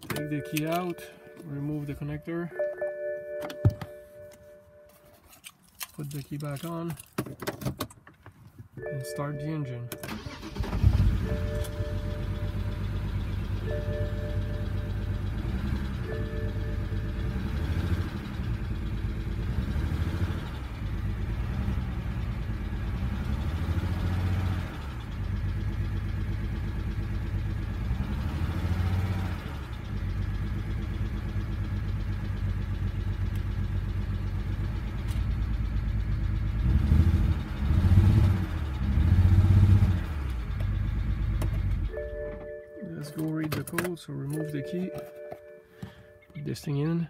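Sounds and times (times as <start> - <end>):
car engine idling: 10.0 - 47.0.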